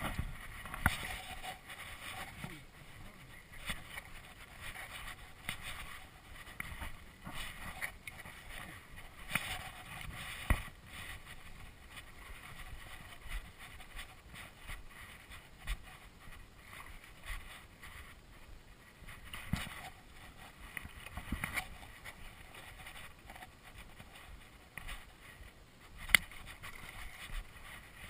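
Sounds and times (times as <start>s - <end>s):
wind on microphone: 0.0s - 15.9s
small clicks and knocks of fly line: 0.0s - 28.0s.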